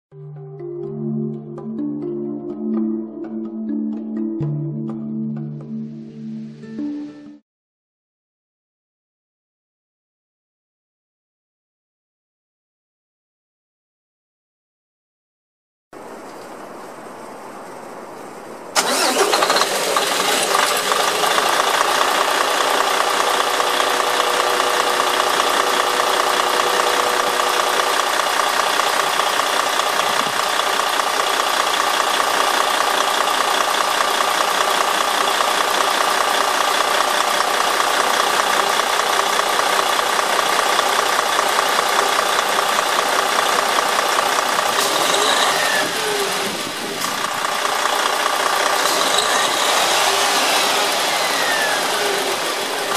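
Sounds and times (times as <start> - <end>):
diesel engine starting and idling: 16.0 - 52.9.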